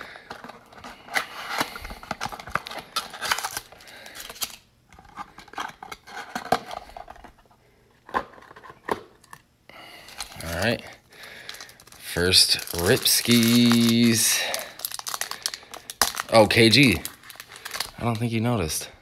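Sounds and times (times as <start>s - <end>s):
cardboard box and foil rustling: 0.0s - 7.4s, 10.1s - 10.8s, 11.4s - 18.4s.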